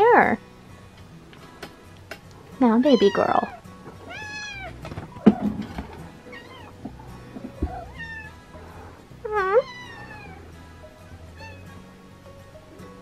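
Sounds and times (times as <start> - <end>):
cat meowing: 2.9 - 4.8, 6.3 - 6.8, 7.6 - 8.4, 9.3 - 10.5, 11.3 - 11.8.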